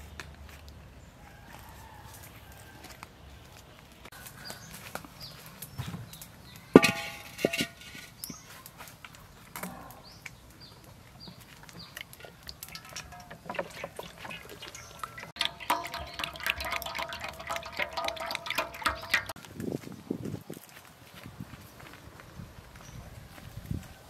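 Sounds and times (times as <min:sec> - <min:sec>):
wok clanging on stove: 0:06.8 - 0:08.2, 0:12.7 - 0:19.4
oil pouring into metal wok: 0:12.0 - 0:19.4.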